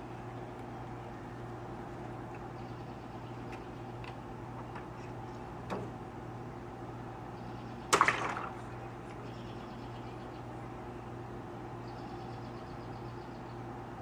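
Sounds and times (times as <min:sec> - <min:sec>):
steady low hum: 0:00.0 - 0:14.0
water balloon bursting: 0:07.9 - 0:08.6.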